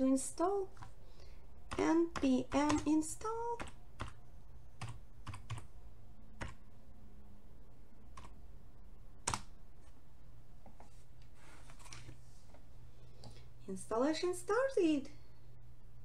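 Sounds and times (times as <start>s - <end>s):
faint low hum: 0.0s - 16.0s
keyboard keystrokes: 9.2s - 9.5s.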